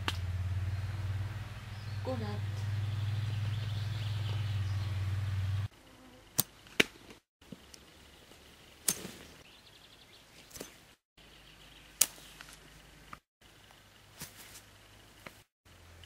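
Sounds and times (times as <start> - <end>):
low hum: 0.0 - 5.7.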